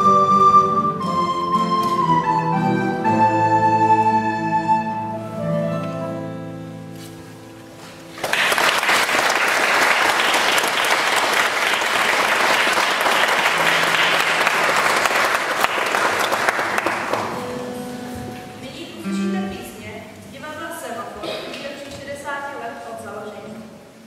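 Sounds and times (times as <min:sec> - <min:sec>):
recorders and keyboard playing: 0:00.0 - 0:08.1, 0:17.2 - 0:20.3
audience applause: 0:08.1 - 0:17.4.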